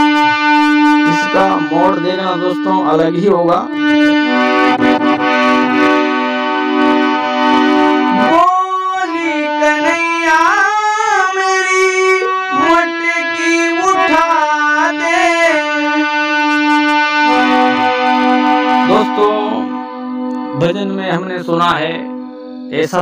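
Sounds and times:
harmonium holding a chord: 0.0s - 23.0s
person singing wordless phrase: 1.1s - 3.7s, 8.1s - 15.7s, 18.9s - 19.7s, 20.5s - 22.1s.

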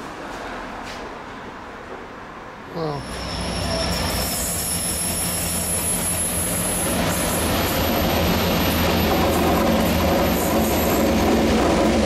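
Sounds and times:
wheels squealing on rail: 3.0s - 11.3s.

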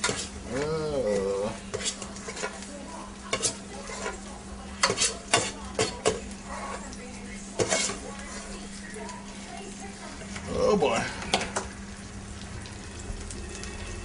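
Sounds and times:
utensil clacking against pan: 0.0s - 0.3s, 1.7s - 2.7s, 3.3s - 7.0s, 7.6s - 8.3s
food sizzling in a frying pan: 0.0s - 14.0s.

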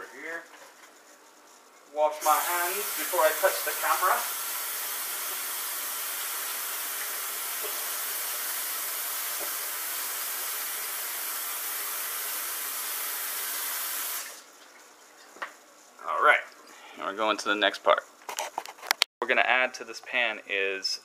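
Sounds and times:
tap running: 4.4s - 11.0s.

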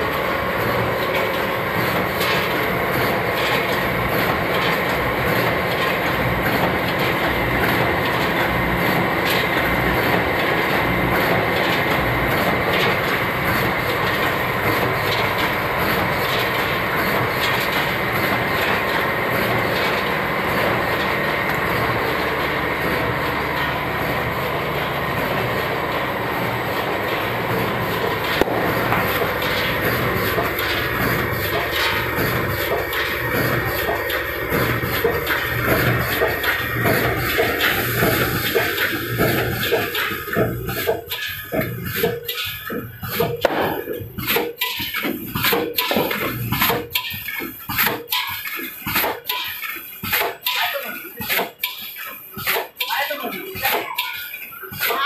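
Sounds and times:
packing machines running: 0.0s - 55.0s.

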